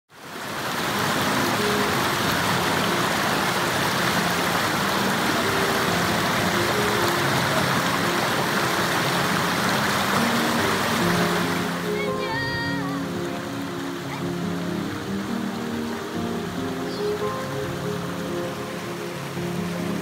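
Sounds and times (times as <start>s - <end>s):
stream rushing over boulders: 0.1s - 20.0s.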